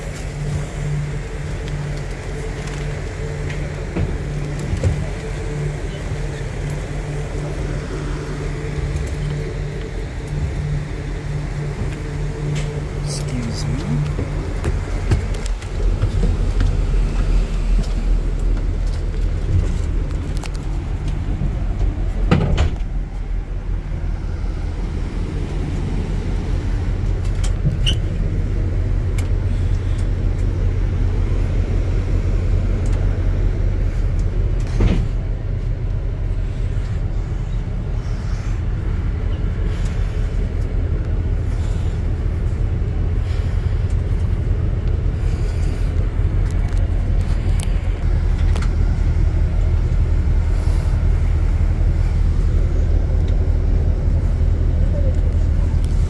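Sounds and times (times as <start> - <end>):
bus engine rumble: 0.0 - 56.0.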